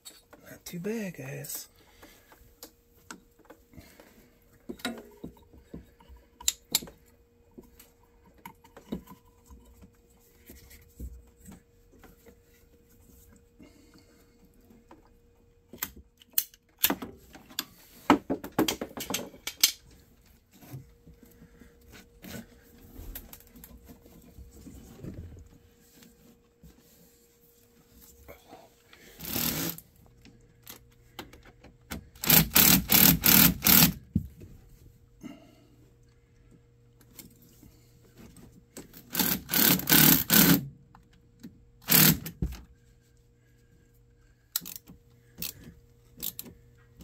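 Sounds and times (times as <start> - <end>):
faint steady hum: 0.0 - 47.0
clicks and clinks of hose clamps: 15.7 - 17.8, 18.6 - 19.8, 44.6 - 46.6.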